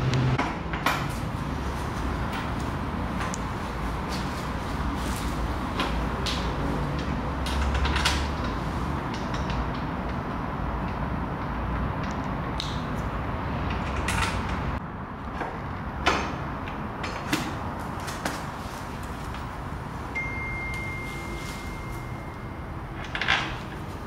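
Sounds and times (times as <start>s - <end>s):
thin high steady tone: 20.1s - 23.0s.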